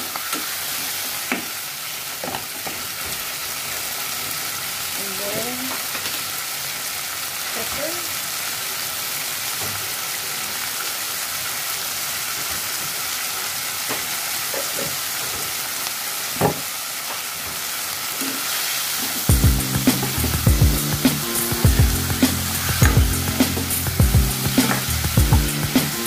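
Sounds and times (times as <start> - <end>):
chicken sizzling in a pot: 0.0 - 26.0
spatula knocking against pot: 22.8 - 23.6.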